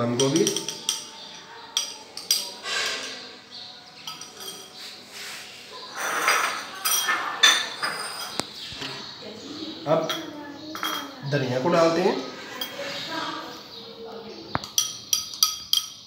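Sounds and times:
glass bowls clinking: 0.0 - 5.0, 5.9 - 9.1, 9.9 - 13.2, 14.6 - 16.0
rustling scrape of food: 4.7 - 6.7
glass dishes set down: 6.0 - 8.5, 10.1 - 11.1.

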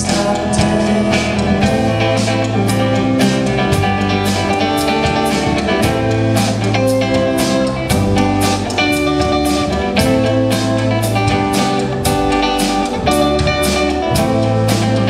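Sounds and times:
bass guitar: 0.0 - 15.0
drum kit beat: 0.0 - 15.0
electric guitar: 0.0 - 15.0.

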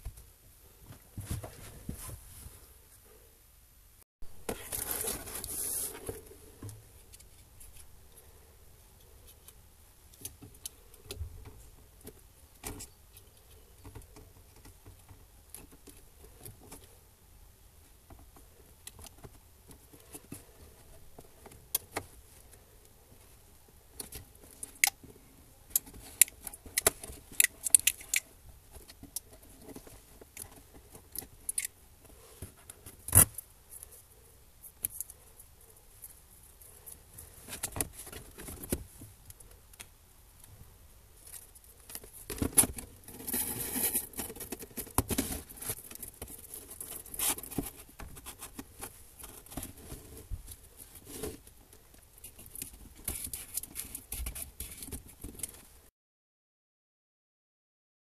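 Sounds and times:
scraping and rustling: 4.4 - 7.9, 41.2 - 51.6.

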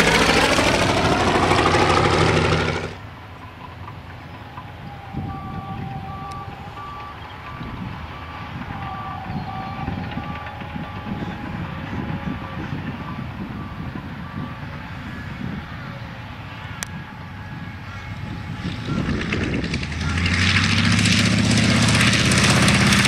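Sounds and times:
radial aircraft engine rumbling: 0.0 - 23.0
repeated reversing beeps: 4.8 - 16.0.

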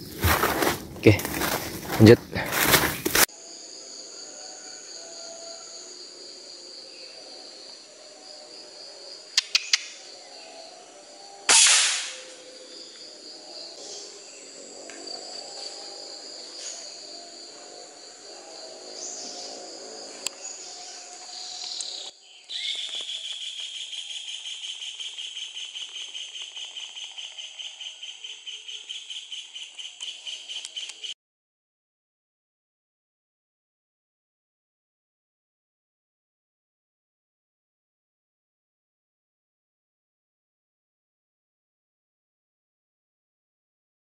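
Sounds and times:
insects buzzing: 0.0 - 31.1
air rifle shot: 11.5 - 12.3.

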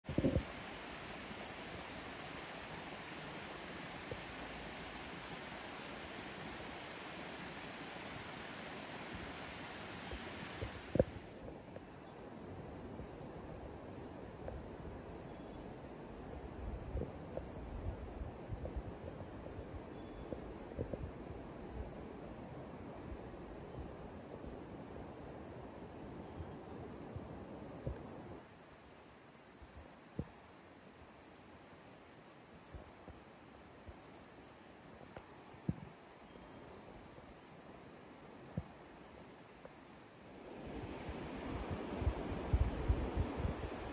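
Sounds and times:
broad hiss: 0.0 - 43.9.

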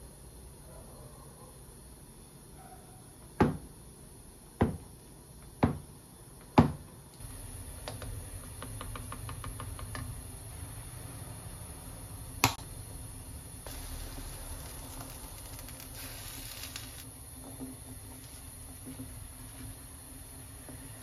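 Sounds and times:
pot hissing on stove: 7.2 - 21.0.

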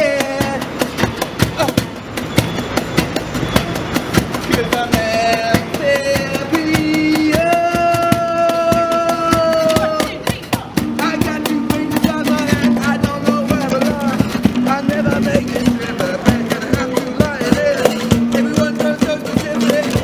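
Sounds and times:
acoustic guitars strummed: 0.0 - 20.0
cajon beating: 0.0 - 20.0
person singing: 4.5 - 20.0.

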